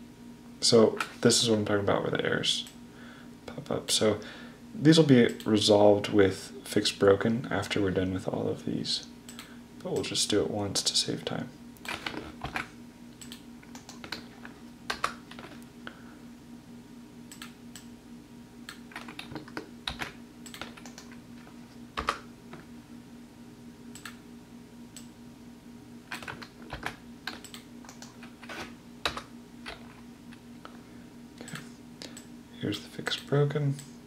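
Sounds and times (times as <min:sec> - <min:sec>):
keyboard typing: 0:18.7 - 0:21.2, 0:26.1 - 0:30.0.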